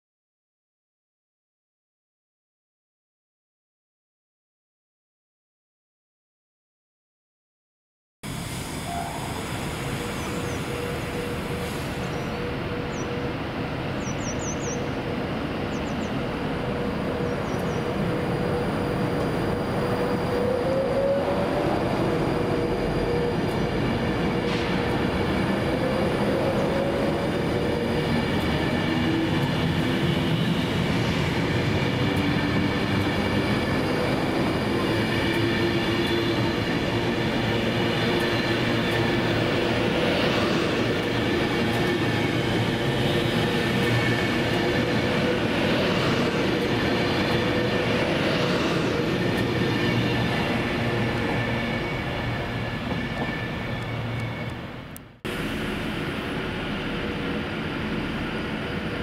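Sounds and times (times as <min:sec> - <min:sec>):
train rail noise: 0:08.2 - 0:59.0
electric train traction whine: 0:08.3 - 0:13.9, 0:16.2 - 0:59.0.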